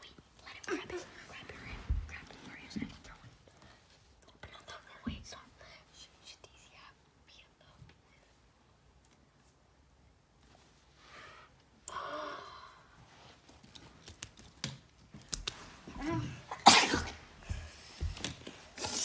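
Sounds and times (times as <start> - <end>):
soft rustling: 0.0 - 11.7, 12.9 - 16.6
plush toys thumping on carpet: 17.4 - 18.5.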